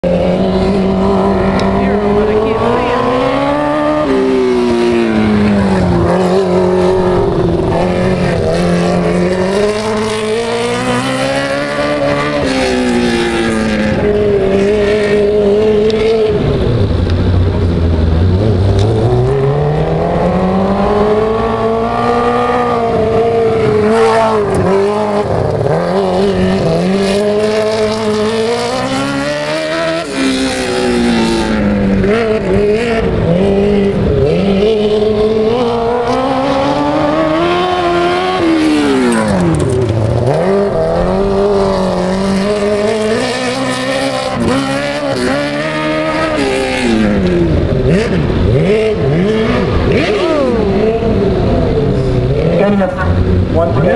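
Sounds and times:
cars passing close by: 0.0 - 53.9
race car engines: 0.0 - 53.9.

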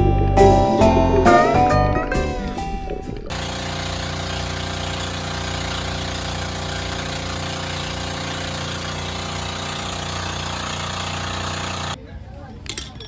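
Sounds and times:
boat engine running steadily: 3.3 - 12.0.

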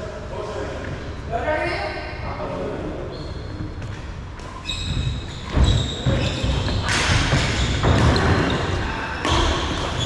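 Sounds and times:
shoe squeaks: 3.0 - 10.0.

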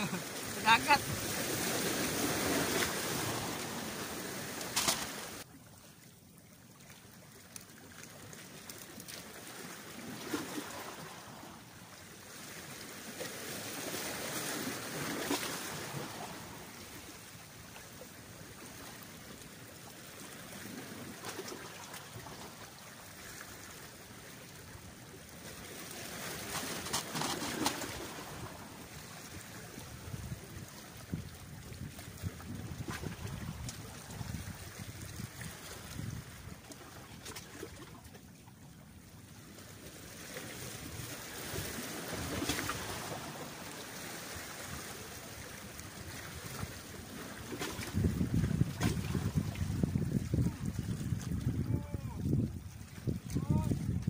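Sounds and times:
waves washing against rocks: 0.0 - 5.5, 8.4 - 17.2, 25.8 - 37.8, 40.0 - 54.0.

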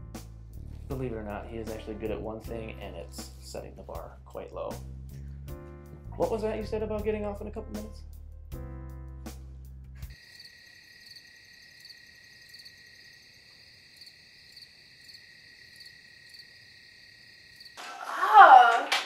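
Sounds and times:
crickets chirping: 10.1 - 17.9.

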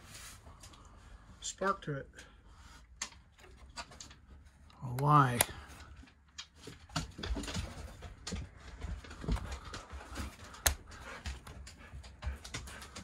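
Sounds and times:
thermostat clicks and taps: 10.5 - 11.6.

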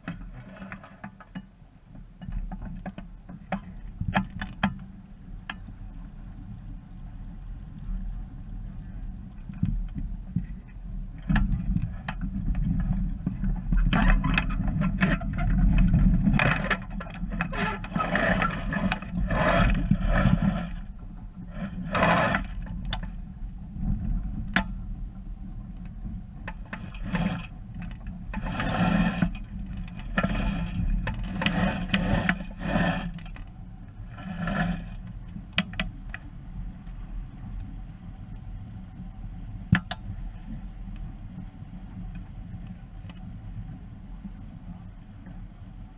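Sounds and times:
water splashing against hull: 9.3 - 25.2.

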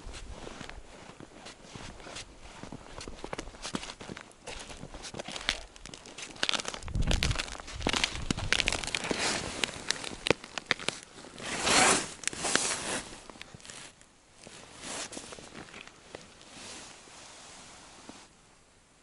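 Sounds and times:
boots crunching over snow: 0.0 - 17.0
clothing rustling: 7.4 - 18.3.

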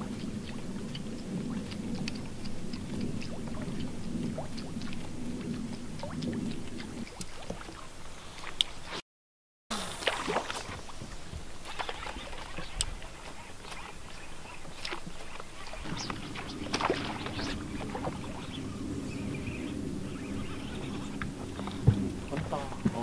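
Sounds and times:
low steady hum: 0.0 - 8.9, 9.8 - 23.0
fish splashing at water surface: 9.8 - 14.0, 14.7 - 18.9.

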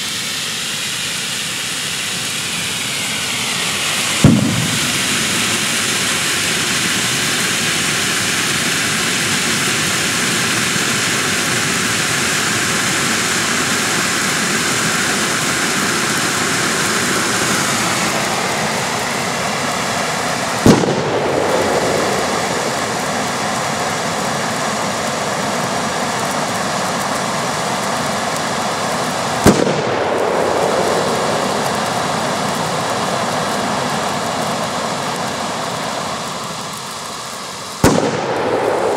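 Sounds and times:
flares burning with loud hiss: 0.0 - 38.9
sharp bangs: 4.0 - 6.1, 20.6 - 23.9, 29.4 - 31.3, 37.8 - 38.9.

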